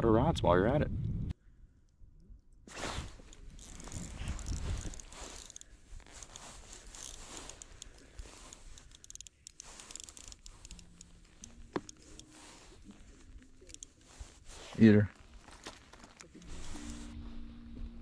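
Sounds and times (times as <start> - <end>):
jacket rustling: 2.7 - 17.8
fishing reel clicks: 3.3 - 14.1.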